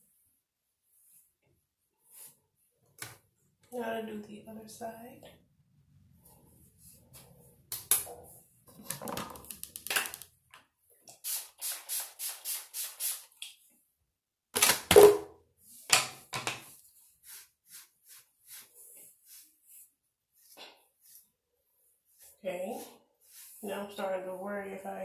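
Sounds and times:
comb scratching through hair: 16.8s - 21.3s, 22.0s - 24.4s.

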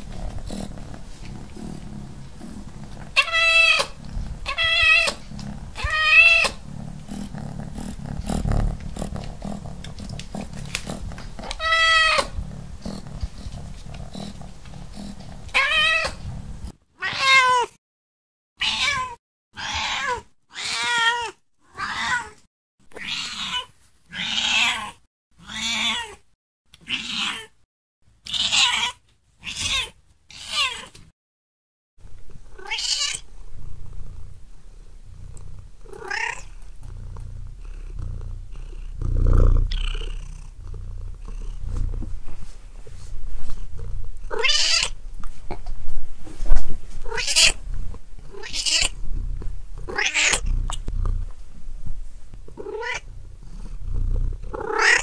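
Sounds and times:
cat meowing: 3.2s - 5.2s, 5.8s - 6.6s, 11.4s - 12.4s, 15.6s - 16.2s, 17.0s - 17.7s, 18.6s - 22.4s, 32.6s - 33.2s, 35.9s - 36.5s, 44.3s - 45.0s, 47.1s - 47.6s, 48.3s - 49.0s, 49.9s - 50.4s, 52.6s - 53.0s, 54.6s - 55.0s.

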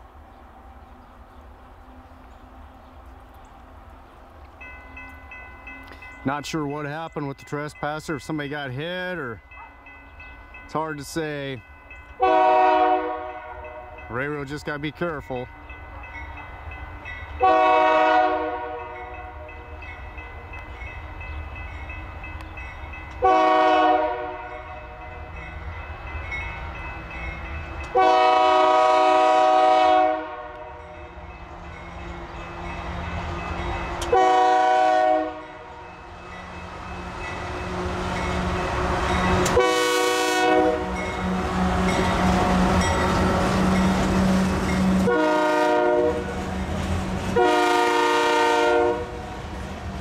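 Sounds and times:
train wheels on rails: 0.0s - 50.0s
locomotive air horn blasts: 12.2s - 14.0s, 17.4s - 19.7s, 23.2s - 24.7s, 27.9s - 30.9s, 34.1s - 35.8s, 39.4s - 42.8s, 44.9s - 46.4s, 47.3s - 49.3s.

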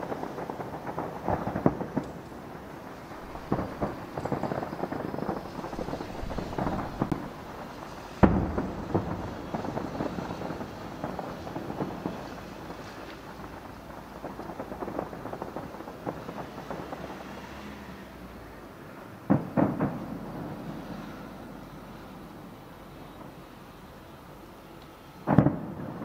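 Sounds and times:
loud firework shell bursts: 0.0s - 13.6s, 19.3s - 21.0s, 25.2s - 26.0s
fireworks crackle: 0.0s - 26.0s.

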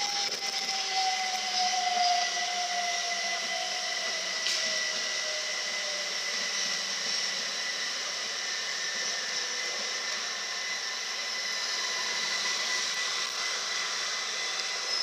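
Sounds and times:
train whine falling in pitch: 0.0s - 7.0s
electric train passing: 0.0s - 8.1s.

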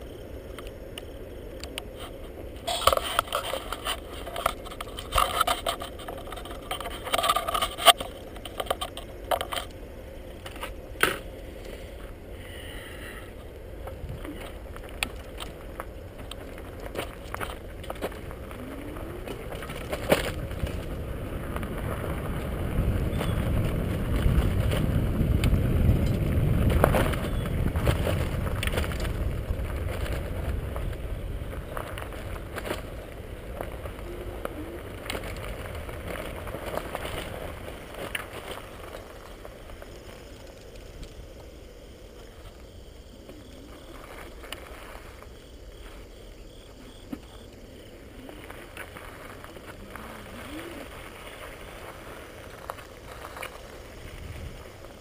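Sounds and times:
bicycle tyres crunching on gravel: 0.0s - 55.0s
bike rattling clicks: 0.5s - 11.8s, 13.4s - 41.5s.

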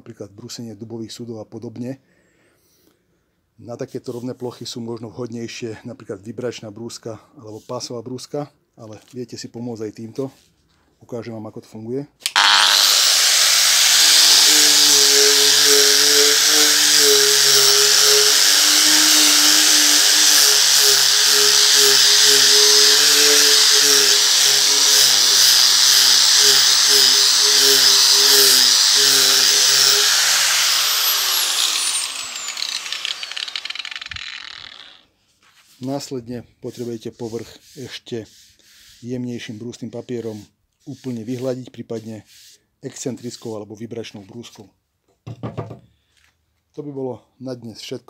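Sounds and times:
grinder winding down whine: 12.3s - 35.0s
angle grinder sanding wood: 12.3s - 36.1s, 36.7s - 43.6s.

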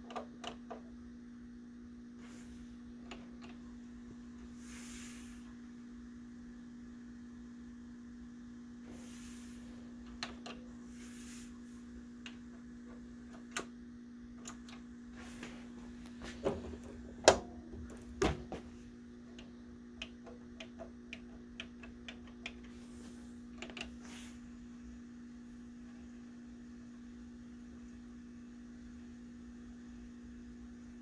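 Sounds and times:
steady low hum: 0.0s - 31.0s
turntable clicks and ticks: 19.3s - 22.7s.

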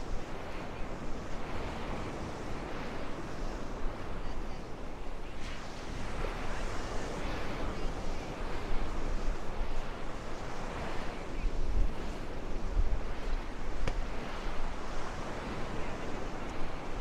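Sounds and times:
surf washing on a beach: 0.0s - 17.0s
wind buffeting the microphone: 0.0s - 17.0s.

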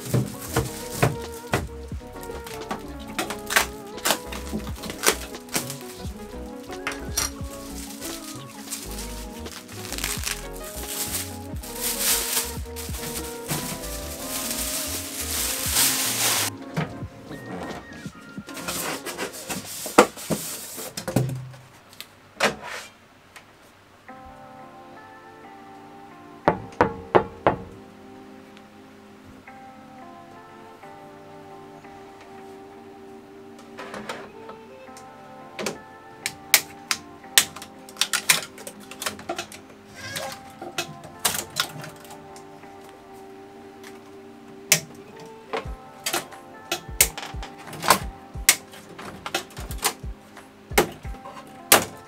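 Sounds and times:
hands rubbing and scraping parts: 0.0s - 16.5s, 17.6s - 21.1s
packing rustle: 0.0s - 16.6s, 17.3s - 21.0s
background music: 0.0s - 21.0s, 24.0s - 52.0s.

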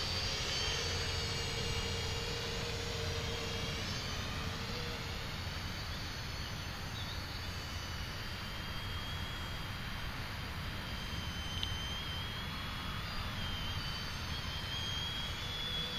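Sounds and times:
quadcopter propellers buzzing: 0.0s - 15.9s.

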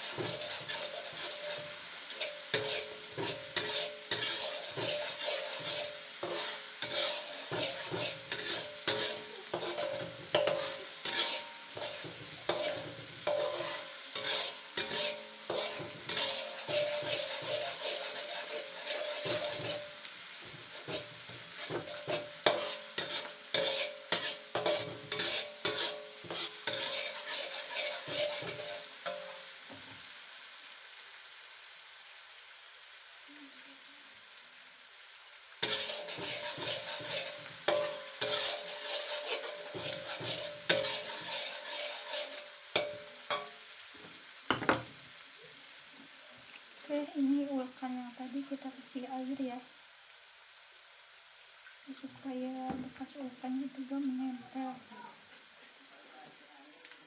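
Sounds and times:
metal spatula scraping wok: 0.0s - 29.8s, 35.6s - 43.7s
spice paste sizzling in oil: 0.0s - 57.0s.

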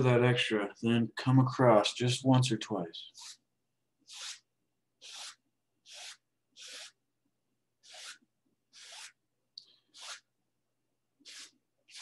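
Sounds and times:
bristle brush swishing on canvas: 7.8s - 9.2s, 9.9s - 10.3s, 11.2s - 12.0s.

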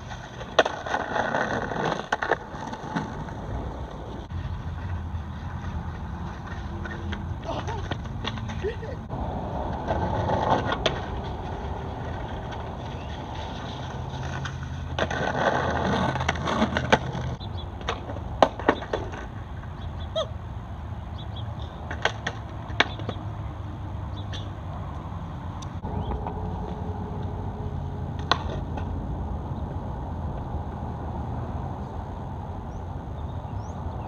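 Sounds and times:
skateboard clacking on ground: 0.0s - 9.0s, 9.6s - 19.8s, 21.6s - 23.3s, 28.1s - 29.0s
skateboard scraping along ledge: 0.0s - 19.7s
skateboard wheels rolling: 0.0s - 34.0s.

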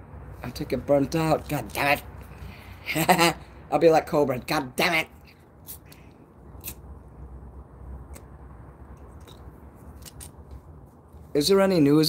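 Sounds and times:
soft puffs on cigarette: 5.6s - 6.9s.

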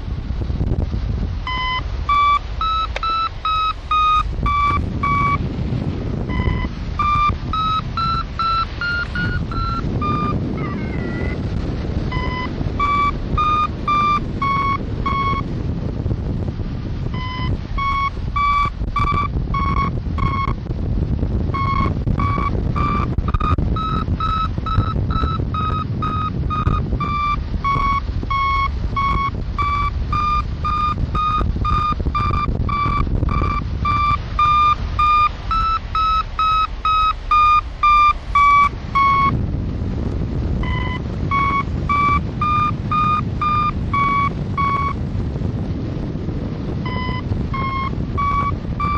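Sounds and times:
wind rush: 0.0s - 48.9s
variometer beeping: 1.4s - 16.1s, 17.0s - 48.9s.

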